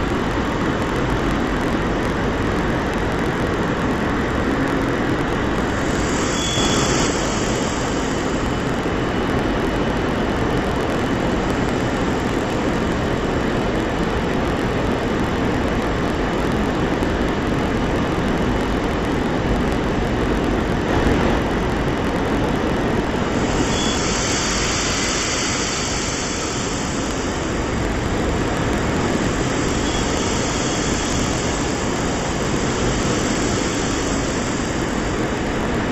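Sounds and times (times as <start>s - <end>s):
jet aircraft cabin noise: 0.0s - 35.9s.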